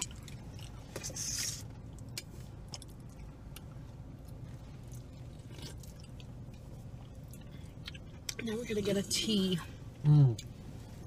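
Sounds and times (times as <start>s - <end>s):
chewing: 0.0s - 8.4s.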